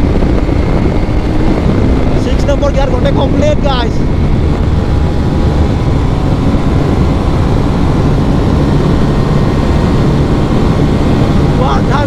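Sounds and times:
motorcycle engine running at high revs: 0.0 - 12.0
wind rushing over microphone: 0.0 - 12.0.

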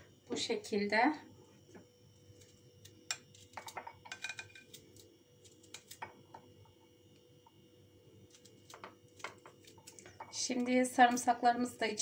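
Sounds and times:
knife slicing garlic: 2.4 - 6.2, 8.3 - 10.8.

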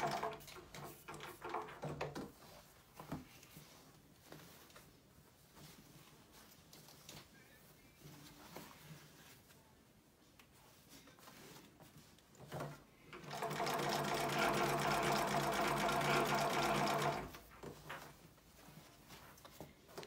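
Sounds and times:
sewing machine stitching: 0.0 - 1.9, 12.6 - 17.5
material rustling: 2.2 - 13.1, 17.1 - 20.0.

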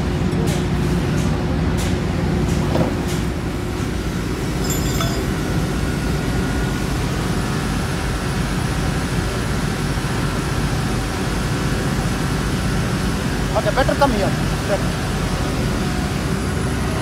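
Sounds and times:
industrial machinery drone: 0.0 - 17.0
light metallic clink: 4.6 - 5.4.

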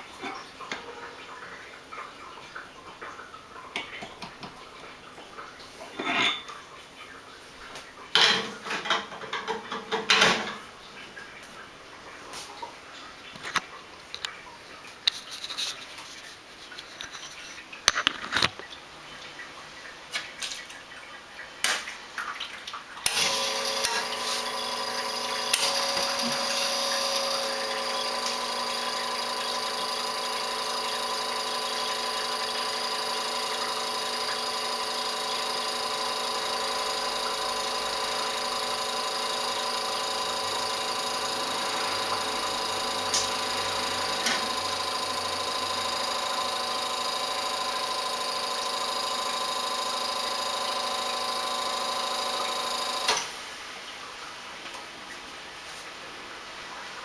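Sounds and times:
espresso machine pump humming: 23.0 - 53.3.

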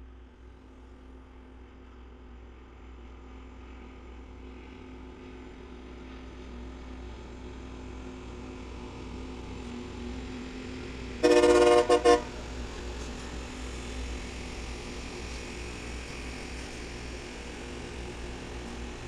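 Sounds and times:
rail grinding train rumbling: 2.5 - 19.0
train horn blast: 11.2 - 12.5.

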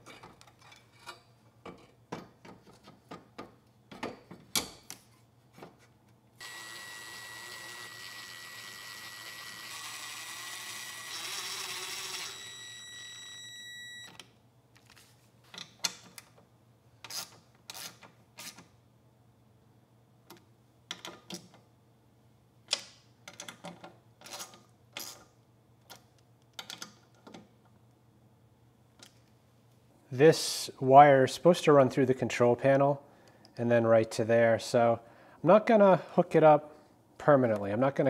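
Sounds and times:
cordless drill whining: 6.4 - 14.1
parts clicking and knocking: 20.2 - 21.6, 22.6 - 27.8.

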